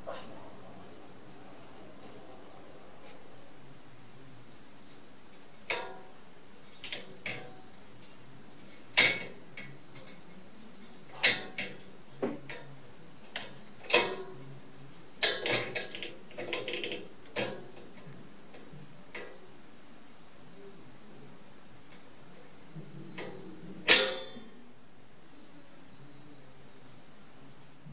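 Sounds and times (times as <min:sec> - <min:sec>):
cage latch clicking and rattling: 0:15.2 - 0:18.1.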